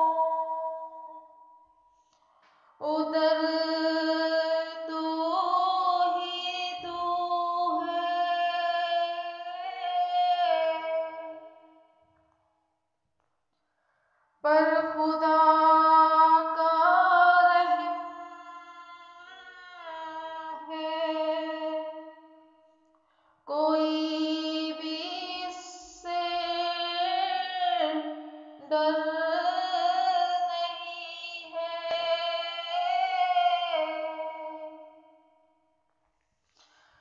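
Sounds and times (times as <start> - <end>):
woman singing: 0.0 - 1.2, 2.8 - 11.7, 14.4 - 22.2, 23.5 - 35.1.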